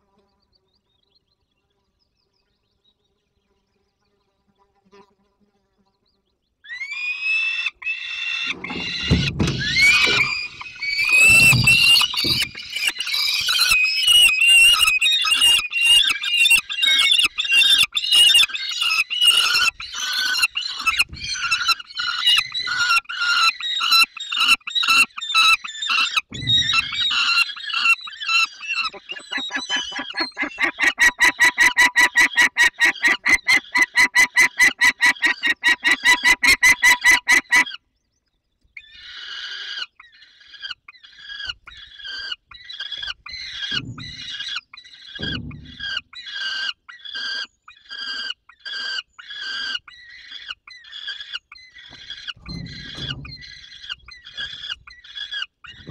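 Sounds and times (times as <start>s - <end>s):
falcon chicks begging calls: 6.7s - 37.8s, 38.8s - 55.9s
low thumps: 8.5s - 12.9s, 26.3s - 27.4s, 43.7s - 44.6s, 45.2s - 46.0s, 51.9s - 54.9s, 55.7s - 55.9s.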